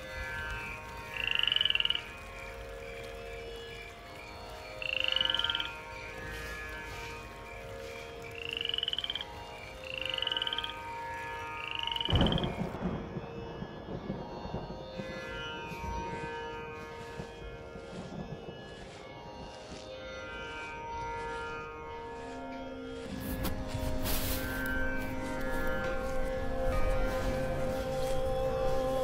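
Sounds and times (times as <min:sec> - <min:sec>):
faint steady drone: 0:00.0 - 0:29.0
frog croaking: 0:01.1 - 0:02.1, 0:04.8 - 0:05.8, 0:08.3 - 0:12.8.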